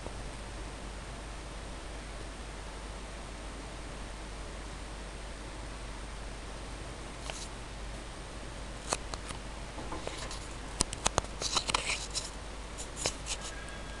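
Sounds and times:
low steady hum: 0:00.0 - 0:14.0
paper rustling: 0:09.9 - 0:10.6, 0:11.3 - 0:13.6.

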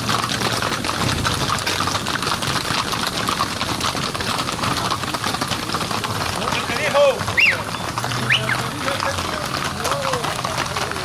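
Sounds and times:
horses hooves walking: 0:00.0 - 0:11.0.

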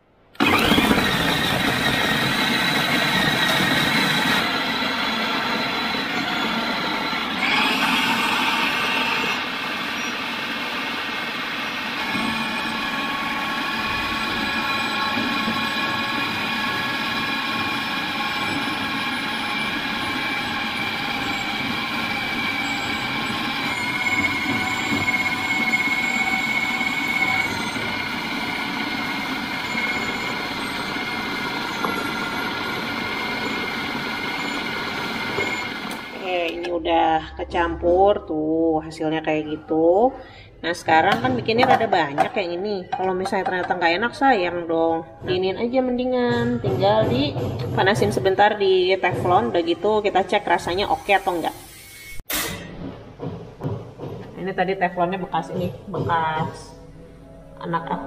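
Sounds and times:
blade churning food: 0:00.4 - 0:36.6
food processor motor whine: 0:00.4 - 0:36.7.

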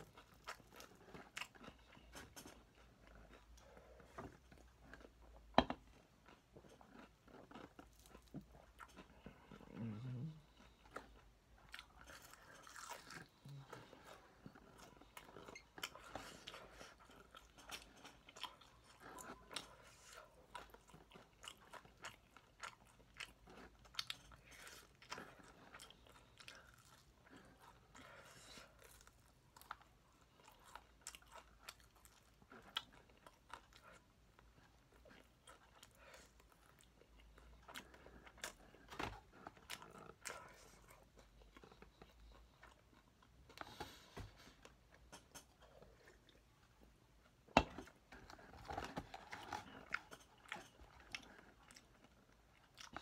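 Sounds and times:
biting and chewing crispy chicken: 0:04.3 - 0:43.8.

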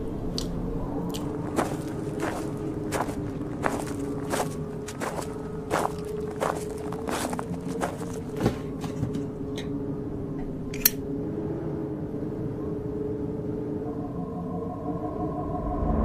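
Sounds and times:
steady low hum: 0:00.0 - 0:16.0
footsteps crunching over rubbish: 0:01.1 - 0:09.5.

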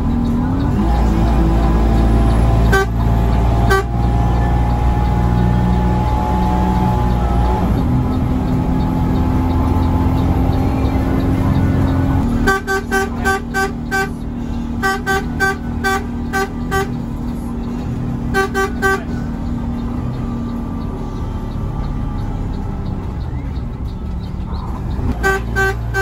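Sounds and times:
diesel engine running: 0:00.0 - 0:26.0
bus horn toots: 0:00.1 - 0:23.0, 0:25.0 - 0:26.0.

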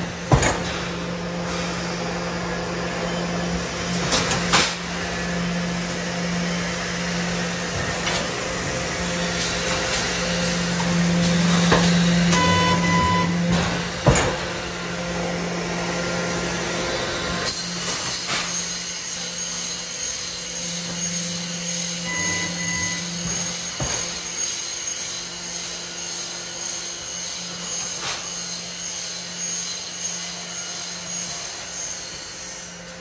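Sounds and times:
welding machine humming: 0:00.0 - 0:33.0
short beep: 0:12.3 - 0:13.4, 0:22.0 - 0:23.4.

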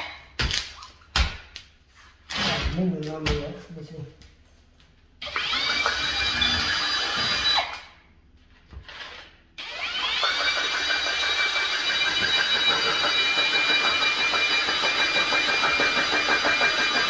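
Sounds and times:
cordless drill whining: 0:08.9 - 0:17.0.

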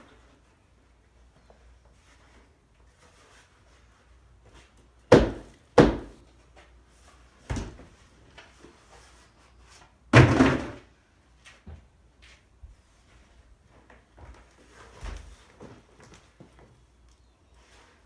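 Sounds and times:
plastic trays knocking on wood: 0:05.1 - 0:06.2.

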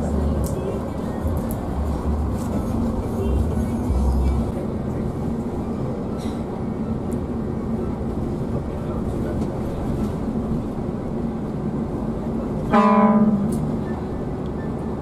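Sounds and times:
bus engine hum: 0:00.0 - 0:15.0
road rumble: 0:00.0 - 0:15.0.

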